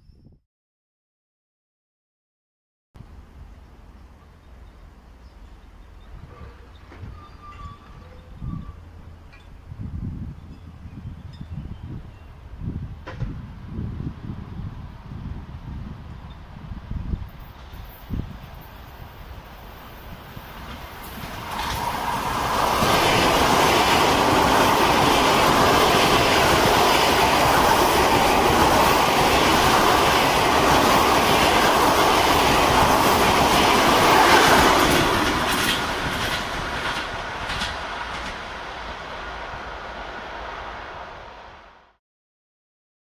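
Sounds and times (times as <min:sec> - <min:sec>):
train wheels on rails: 0:13.0 - 0:13.4, 0:17.2 - 0:41.6.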